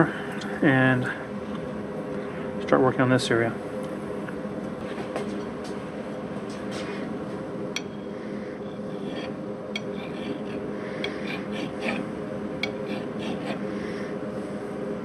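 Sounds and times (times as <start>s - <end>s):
steady hum: 0.0s - 15.0s
hand file scraping steel: 8.9s - 13.7s.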